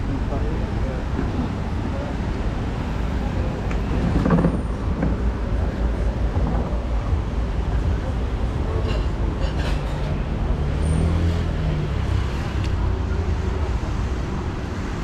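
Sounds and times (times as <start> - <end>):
passing vehicles rumbling: 0.0 - 15.0.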